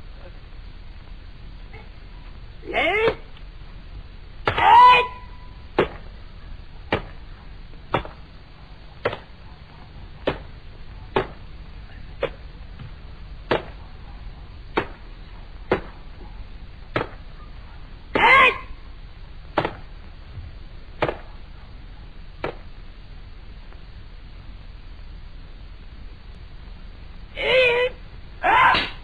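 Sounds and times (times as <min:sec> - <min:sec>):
person shouting: 0:02.6 - 0:03.3, 0:04.5 - 0:05.4, 0:18.2 - 0:18.8, 0:27.4 - 0:29.0.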